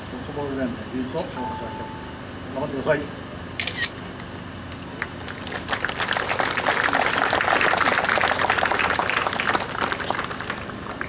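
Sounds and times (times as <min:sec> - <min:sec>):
crowd applauding: 0:05.0 - 0:11.0.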